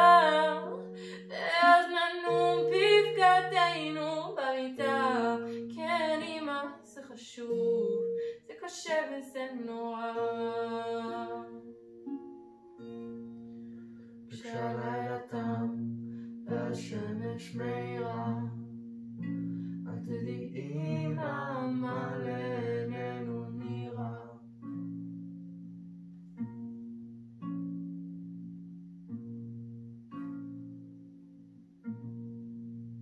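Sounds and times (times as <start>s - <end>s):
girl singing: 0.0s - 11.7s, 16.5s - 18.6s, 19.9s - 24.4s
acoustic guitars strumming chords: 9.9s - 33.0s.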